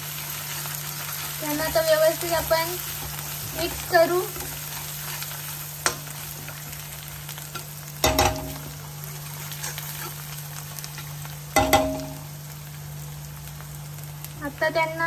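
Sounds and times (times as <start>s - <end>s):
paste sizzling in hot oil: 0.0s - 15.0s
spatula stirring and scraping: 0.5s - 6.8s, 7.4s - 11.9s
spatula knocking on pan: 8.0s - 8.7s, 11.6s - 12.2s.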